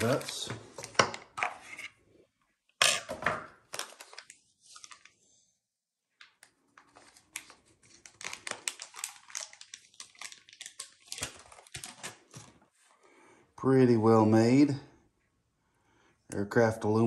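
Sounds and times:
plastic bag crinkling: 3.7 - 5.2, 6.8 - 12.6.

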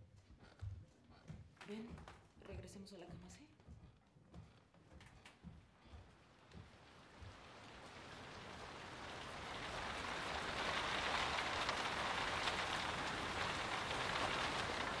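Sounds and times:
steady rain with patter of drops: 6.3 - 15.0.

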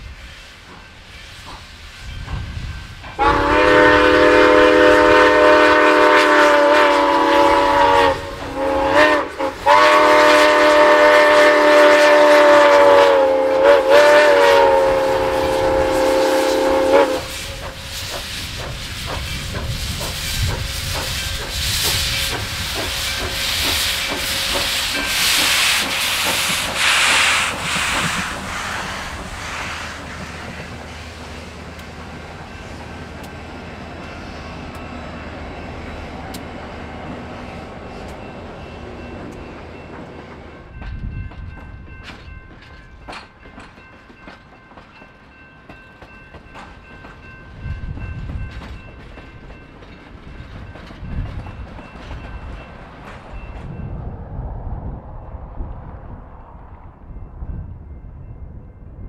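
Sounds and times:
steam hissing from cylinders: 0.0 - 31.6
train wheels clicking over rails: 0.2 - 53.8
steam locomotive whistle: 3.2 - 31.6.

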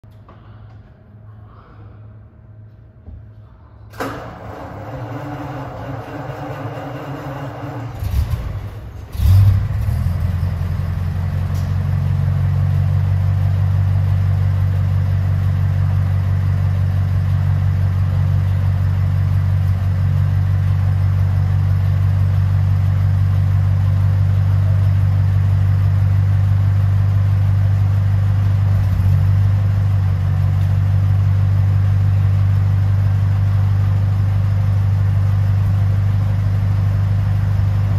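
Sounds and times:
car engine starting and idling: 3.9 - 37.9.

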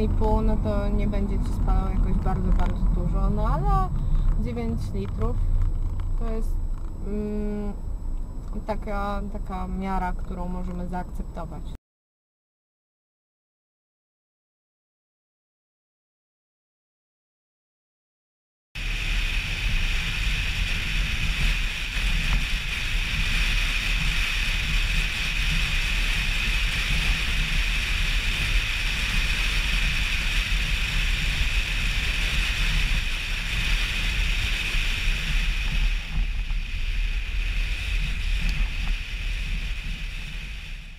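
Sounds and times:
wind rushing over microphone: 0.0 - 8.4, 18.8 - 40.9.

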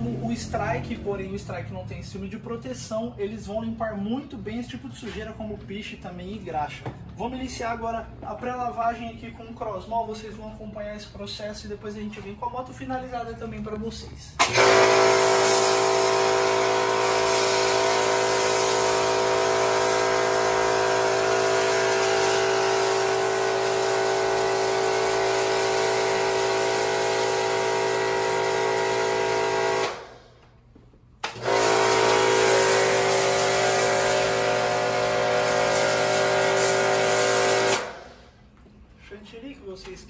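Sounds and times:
foam cannon spraying hiss: 14.4 - 30.1, 31.4 - 38.2
pressure washer motor humming: 14.4 - 30.3, 31.2 - 38.3.

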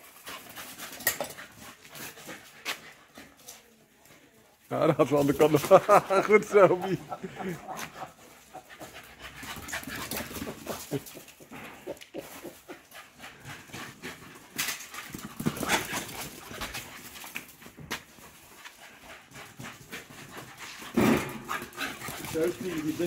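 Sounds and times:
paws scuffling on stone: 0.0 - 23.0
dog noises: 6.5 - 23.0.

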